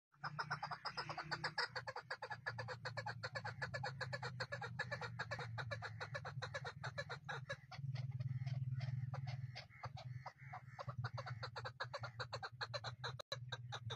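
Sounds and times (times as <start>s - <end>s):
low steady hum: 4.8s - 11.2s.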